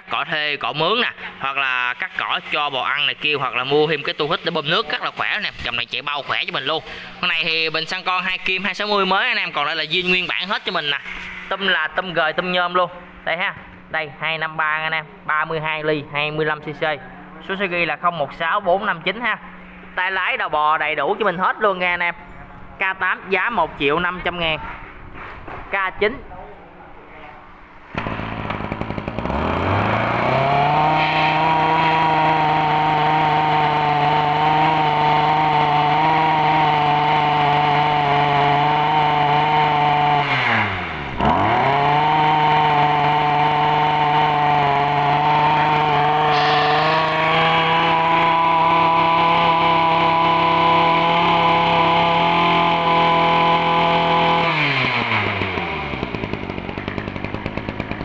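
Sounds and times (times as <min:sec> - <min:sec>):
brush cutter engine revving: 0:27.9 - 0:58.0.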